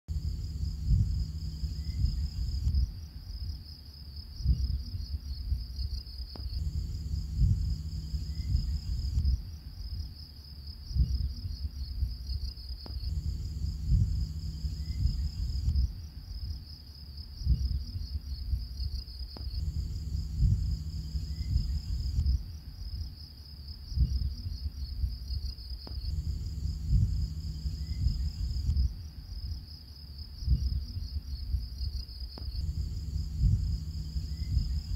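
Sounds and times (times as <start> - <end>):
rhythmic low beat: 0.0 - 3.7, 4.4 - 10.2, 10.9 - 16.7, 17.4 - 23.1, 23.9 - 29.7, 30.4 - 34.9
slow repeating tones: 0.1 - 3.0, 6.4 - 9.4, 13.1 - 16.0, 19.4 - 22.4, 26.0 - 29.0, 32.6 - 34.9
shrill cricket-like chirring: 0.1 - 34.9.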